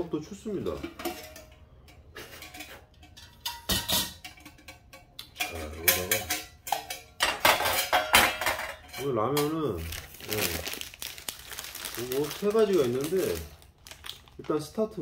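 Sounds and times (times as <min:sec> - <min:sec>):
metal pots knocking and scraping: 0:00.0 - 0:11.1.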